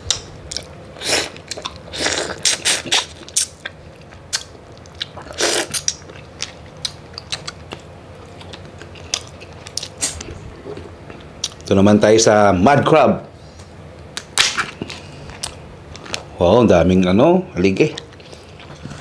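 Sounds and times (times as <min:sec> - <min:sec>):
eating with bites and crunches: 0:00.0 - 0:11.7, 0:14.0 - 0:16.4, 0:17.9 - 0:19.0.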